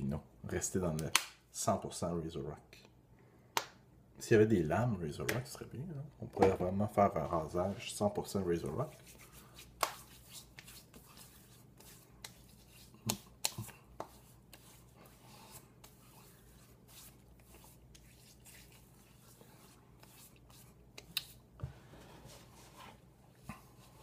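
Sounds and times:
hand slaps on skin: 0:01.0 - 0:01.4, 0:03.6 - 0:03.8, 0:09.8 - 0:10.1, 0:13.0 - 0:14.2
skin rubbing: 0:08.6 - 0:21.5
hands patting skin: 0:08.9 - 0:21.6.

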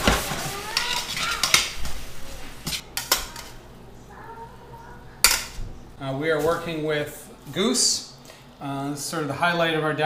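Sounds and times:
food sizzling: 0:00.0 - 0:06.0
tongs scraping a metal skillet: 0:00.4 - 0:02.0.

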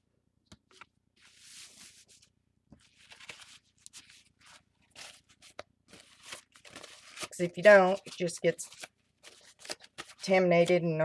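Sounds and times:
plastic card scraping: 0:00.6 - 0:10.9
paper towel rustling: 0:01.2 - 0:08.4.

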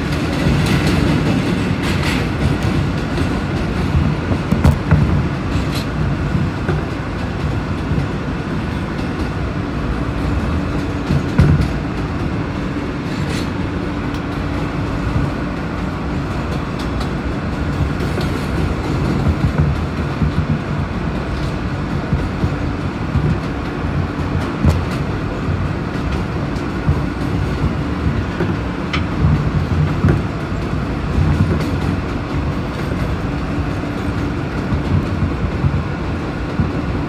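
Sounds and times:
sharp track clicks: 0:00.0 - 0:37.0
subway wheels rumbling on rails: 0:00.0 - 0:37.0.

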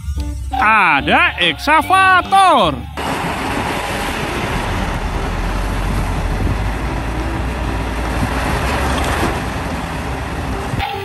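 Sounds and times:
excavator diesel engine rumble: 0:02.8 - 0:11.0.

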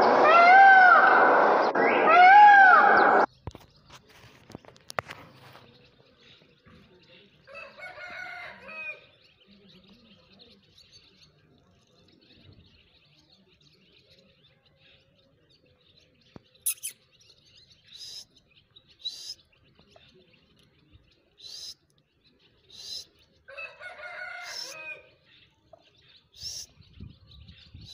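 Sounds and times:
short high bird chirps: 0:16.6 - 0:17.2, 0:17.9 - 0:18.4, 0:26.4 - 0:26.8.

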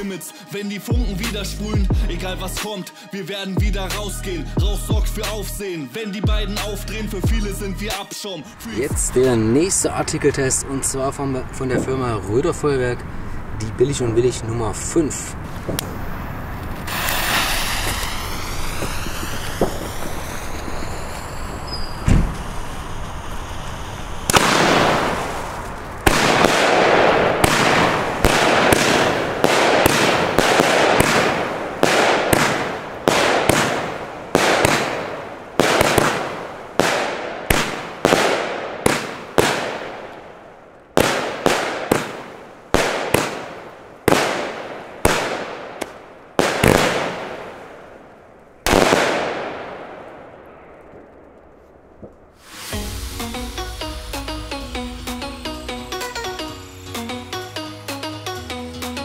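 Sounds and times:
firework shots: 0:15.5 - 0:58.0
fuse hissing and sparking: 0:15.8 - 0:26.5, 0:52.4 - 0:57.1.

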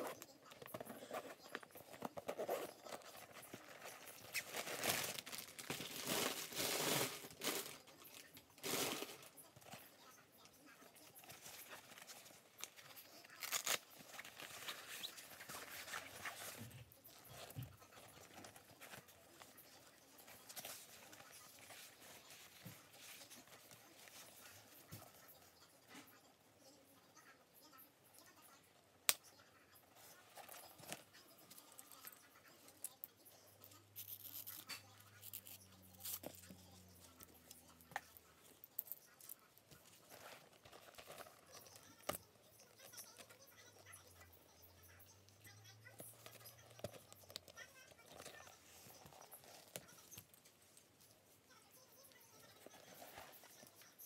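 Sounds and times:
bag rustling and scratching: 0:00.0 - 0:10.0, 0:39.8 - 0:41.9
wrapping crinkling: 0:00.0 - 0:24.9.

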